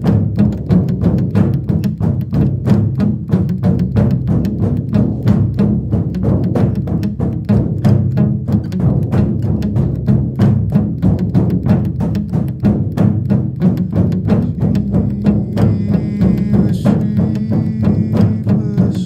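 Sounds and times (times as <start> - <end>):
frame drum beaten fast: 0.0 - 19.0.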